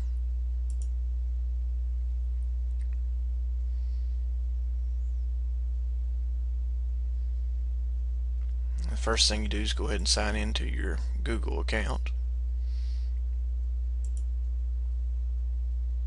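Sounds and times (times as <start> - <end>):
mains hum: 0.0 - 16.0
faint clicks: 0.6 - 1.0, 14.0 - 14.5.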